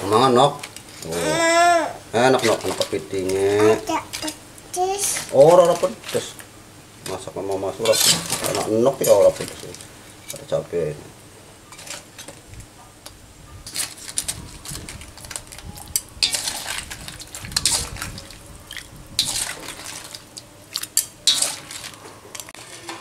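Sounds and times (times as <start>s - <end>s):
metal ladle scraping wok: 7.8s - 9.4s, 16.2s - 23.0s
liquid splashing: 16.2s - 22.0s.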